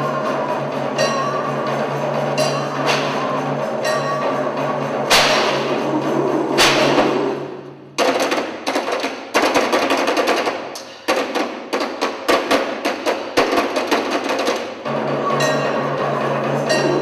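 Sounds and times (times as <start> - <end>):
loud ringing crash: 0.0 - 8.0
sharp rapid knocks: 5.0 - 15.1.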